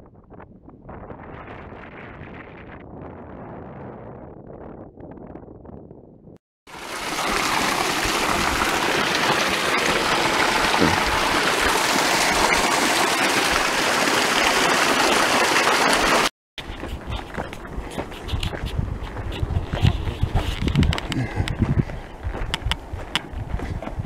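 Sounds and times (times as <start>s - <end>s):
stream rushing over boulders: 6.7s - 16.3s.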